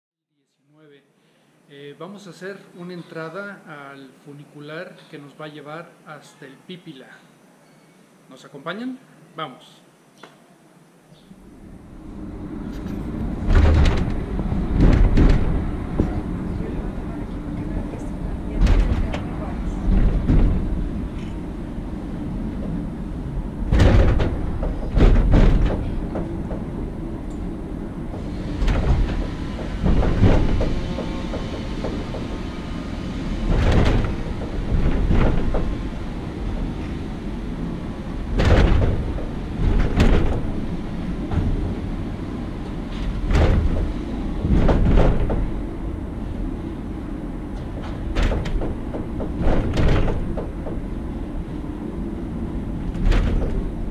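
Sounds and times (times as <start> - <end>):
low rumble of funicular car: 11.2 - 53.9
loud clunks: 12.8 - 16.4, 18.5 - 22.9, 23.6 - 32.6, 33.2 - 42.3, 42.9 - 46.4, 47.6 - 51.0, 52.8 - 53.9.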